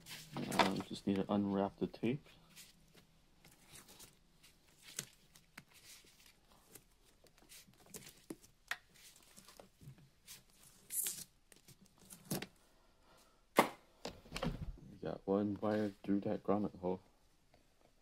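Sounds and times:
tape crinkling and tearing: 10.6s - 12.5s
tape ripping: 10.8s - 11.4s.

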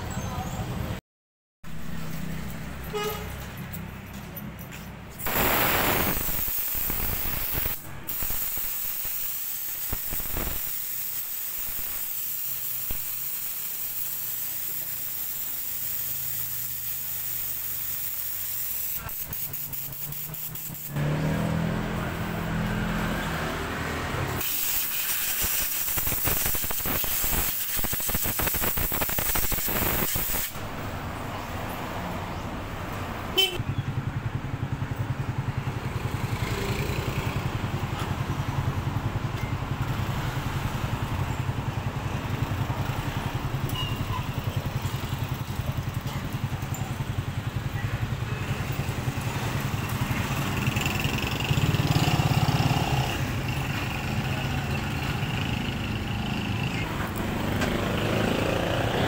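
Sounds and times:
compressed air hissing: 5.2s - 21.0s, 24.4s - 30.6s.

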